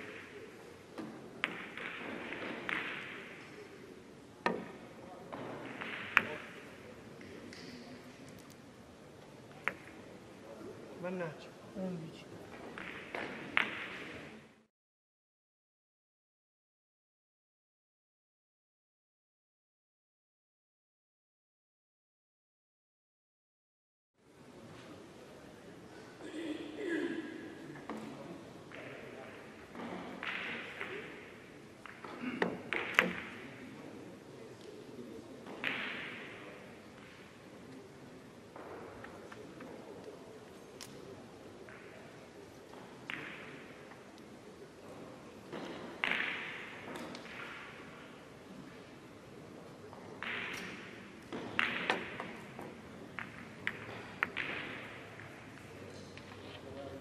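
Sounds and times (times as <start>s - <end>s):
billiard balls clicking: 50.2s - 56.4s.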